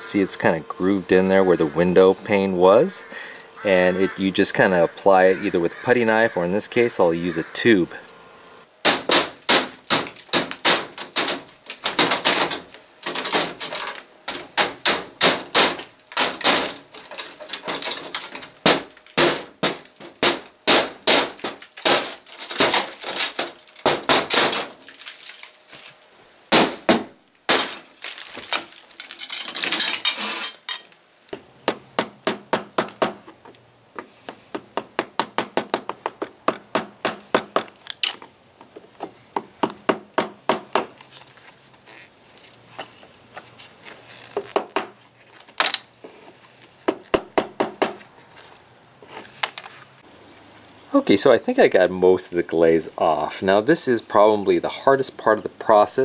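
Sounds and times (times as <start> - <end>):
glass breaking: 8.9 - 25.8, 26.5 - 31.0.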